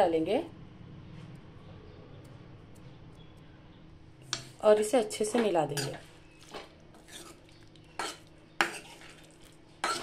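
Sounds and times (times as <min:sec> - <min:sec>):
metal spatula scraping a pan: 0:07.0 - 0:10.0.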